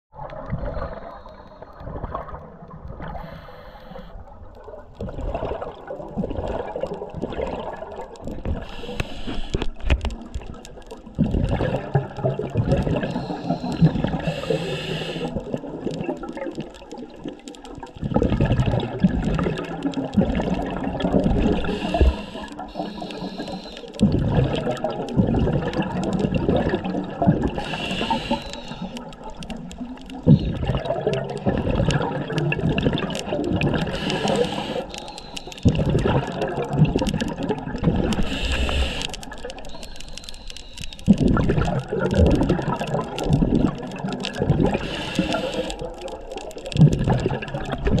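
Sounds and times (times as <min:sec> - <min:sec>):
gurgling exhaled bubbles: 0:00.1 - 0:48.0
regulator inhalation hiss: 0:03.2 - 0:04.2, 0:08.6 - 0:09.6, 0:13.0 - 0:15.4, 0:21.6 - 0:23.9, 0:27.6 - 0:28.9, 0:33.9 - 0:35.6, 0:38.2 - 0:41.0, 0:44.8 - 0:45.8.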